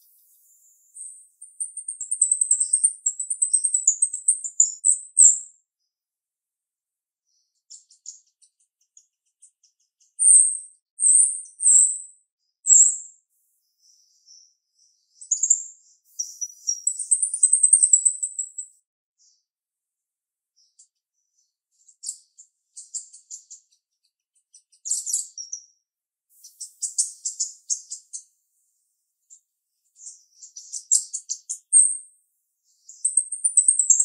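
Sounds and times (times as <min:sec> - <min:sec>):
starling calling: 0:32.8 - 0:34.0.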